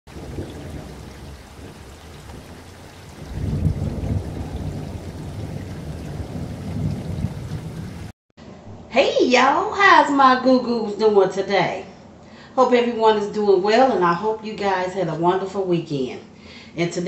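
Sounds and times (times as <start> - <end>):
waves washing onto shore: 0.1 - 8.1.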